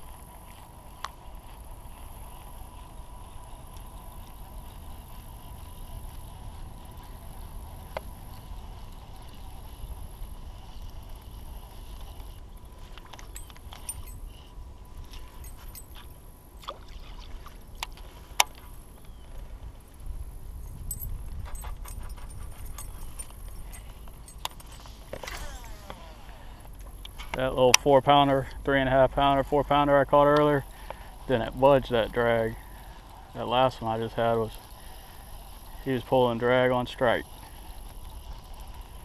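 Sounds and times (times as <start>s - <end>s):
fishing tackle clicks and knocks: 11.9s - 19.5s, 20.6s - 26.0s.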